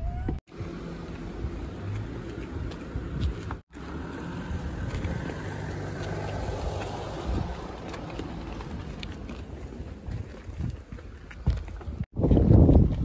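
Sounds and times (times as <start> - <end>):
footsteps on gravel: 0.9 - 13.0
wind on microphone: 4.4 - 13.0.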